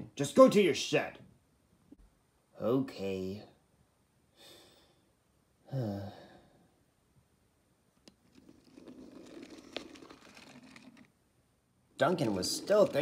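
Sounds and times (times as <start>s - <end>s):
toy train scraping on track: 8.3s - 11.1s, 12.0s - 13.0s.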